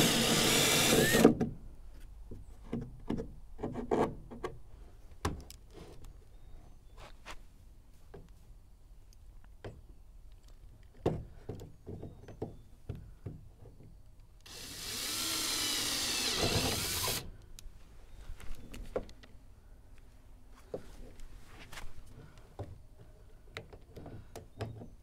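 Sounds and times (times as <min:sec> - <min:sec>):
power drill boring: 0:00.0 - 0:01.3, 0:14.5 - 0:17.3.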